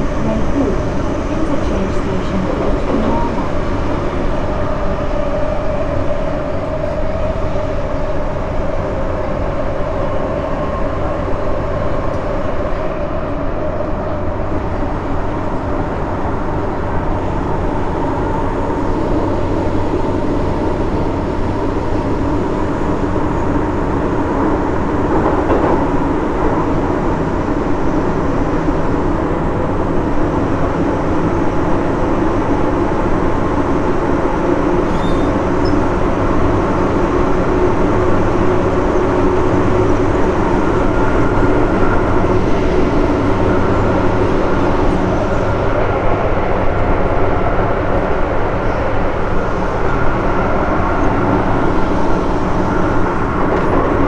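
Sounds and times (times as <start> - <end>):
humming tones: 0.0 - 25.0
train wheels rumbling on rail: 0.0 - 54.0.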